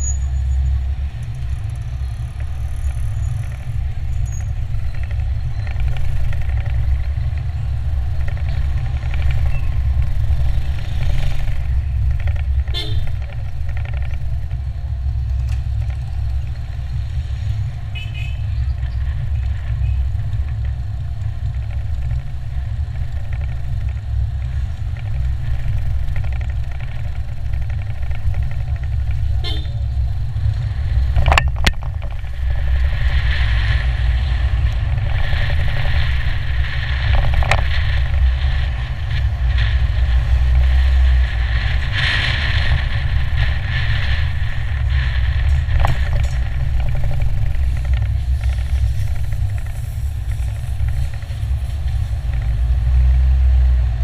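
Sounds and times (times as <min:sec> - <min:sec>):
car driving rumble: 0:00.0 - 0:54.0
vehicle horn toots: 0:12.7 - 0:13.2, 0:17.9 - 0:18.5, 0:29.4 - 0:29.8.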